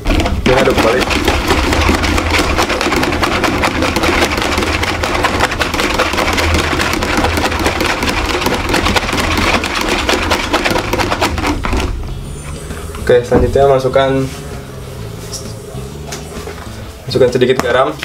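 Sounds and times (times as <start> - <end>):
whisk scraping metal bowl: 0.0 - 11.9.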